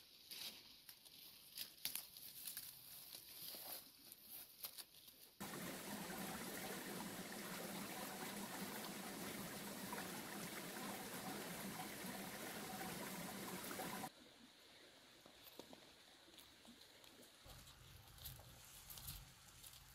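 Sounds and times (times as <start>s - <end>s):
stream flowing: 5.4s - 14.1s.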